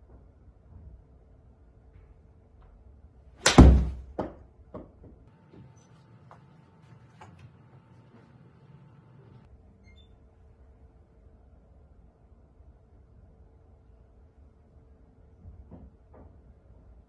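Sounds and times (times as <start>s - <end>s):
golf club striking ball: 3.4s - 4.0s
ball slamming into screen: 3.4s - 4.1s.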